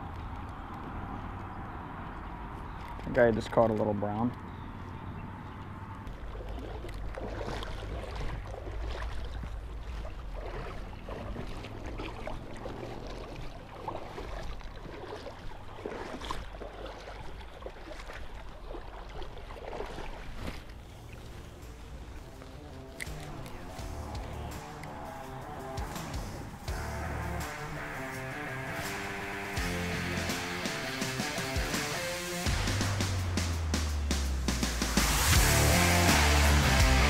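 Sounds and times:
river water splashing around legs: 0.0s - 37.0s.

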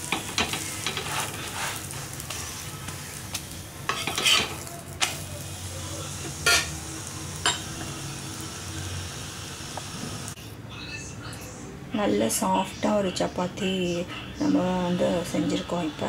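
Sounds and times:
flatbread sizzling in oil: 0.0s - 10.4s
metal spatula scraping: 0.1s - 3.0s, 3.9s - 5.2s, 6.4s - 6.7s.

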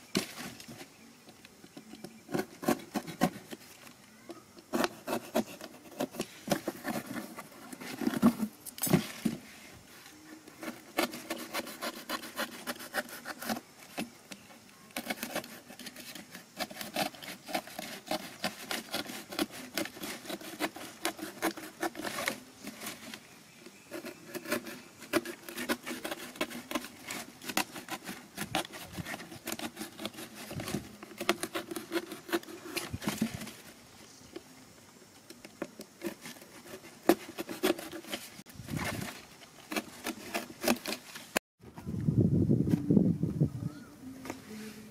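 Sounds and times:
knife cutting cardboard: 2.1s - 3.7s, 4.6s - 9.5s, 10.5s - 33.7s, 35.4s - 41.4s.

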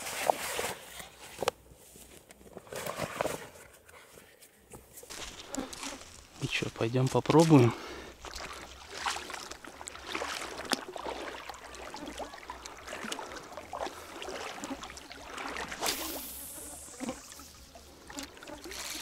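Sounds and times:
footsteps wading through water: 5.1s - 19.0s.

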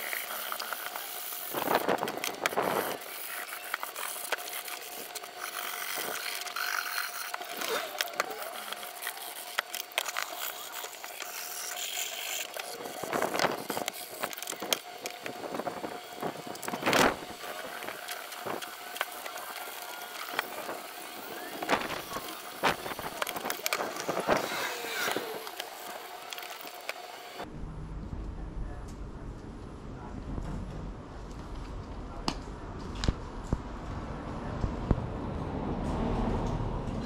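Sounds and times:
sandpaper scraping metal pan: 0.0s - 14.7s.

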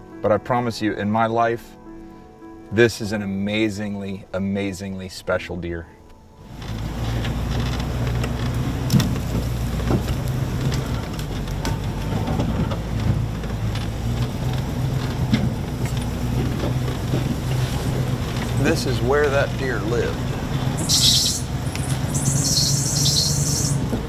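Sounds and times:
constant rushing noise: 6.4s - 24.0s
vehicle engine running: 6.4s - 24.0s
knocks and rattles: 6.5s - 20.8s.

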